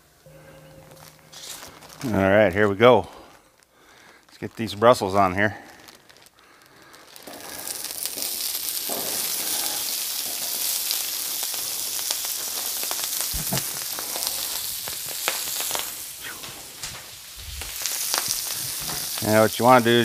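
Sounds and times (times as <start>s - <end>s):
vegetables sizzling on a griddle: 5.3s - 20.0s.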